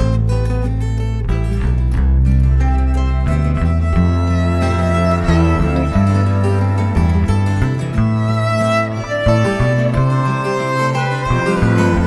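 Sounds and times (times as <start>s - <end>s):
low sustained bass: 0.0s - 12.0s
bowed strings playing held notes: 1.6s - 12.0s.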